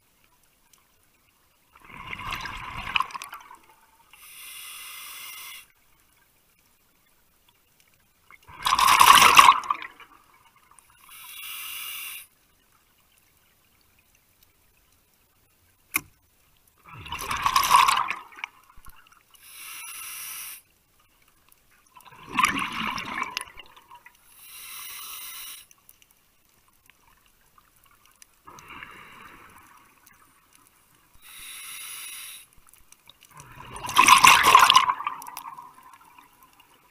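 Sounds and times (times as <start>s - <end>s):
hissing regulator inhalations: 4.1s - 5.8s, 11.0s - 12.3s, 19.4s - 20.7s, 24.3s - 25.7s, 31.2s - 32.6s
bubbling exhalations: 8.5s - 9.9s, 22.2s - 23.6s, 33.3s - 36.2s.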